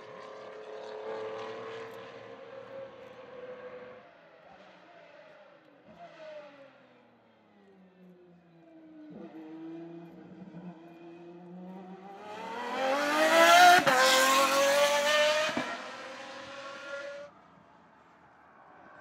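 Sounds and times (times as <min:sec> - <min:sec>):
sports car accelerating hard: 0:09.0 - 0:17.3.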